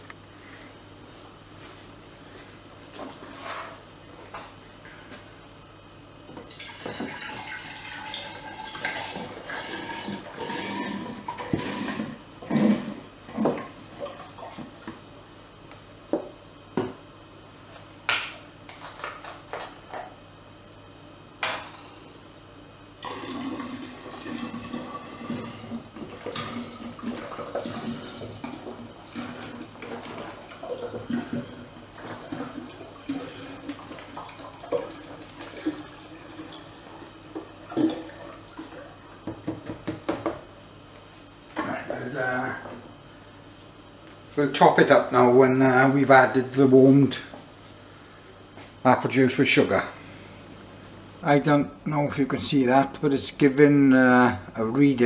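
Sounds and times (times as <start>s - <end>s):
juice pouring into glass jar: 23.0s - 30.0s.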